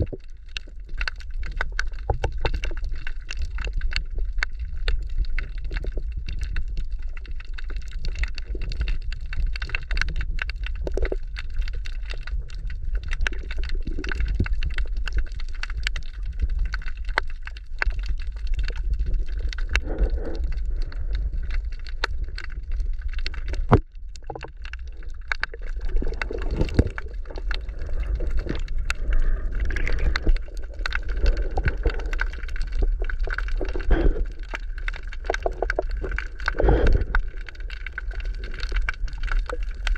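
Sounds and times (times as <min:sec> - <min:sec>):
clicks and crackles: 0:00.0 - 0:39.9
underwater moving water rumble: 0:00.0 - 0:39.9.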